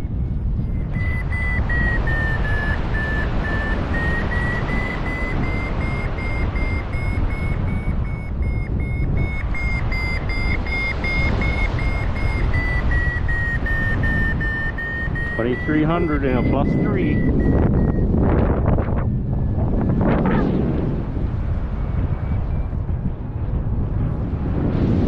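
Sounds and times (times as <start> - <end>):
wind noise on microphone: 0.0 - 25.0
short high beeps: 0.7 - 18.2.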